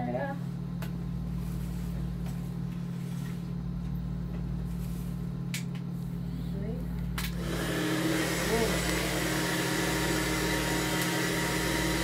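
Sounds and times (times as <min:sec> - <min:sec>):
low electrical hum: 0:00.0 - 0:12.0
hair blower running: 0:07.2 - 0:12.0.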